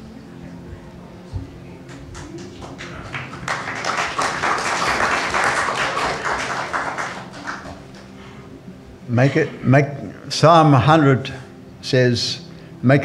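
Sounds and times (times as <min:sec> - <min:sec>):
congregation applauding: 0:01.9 - 0:08.2.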